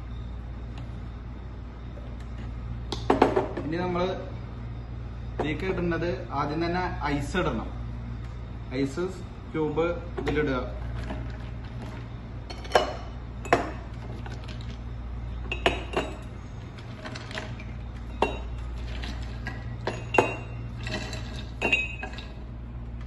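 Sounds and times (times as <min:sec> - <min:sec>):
steady low hum: 0:00.0 - 0:23.0
ice cubes clinking into glass: 0:18.2 - 0:22.3.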